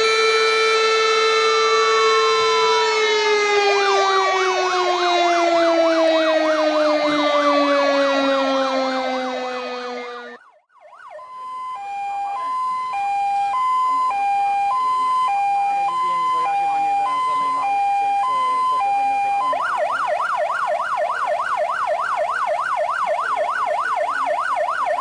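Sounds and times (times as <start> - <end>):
deep siren winding down: 0.0 - 25.0
two-tone fire engine siren: 0.0 - 25.0
wavering yelp siren: 0.0 - 25.0.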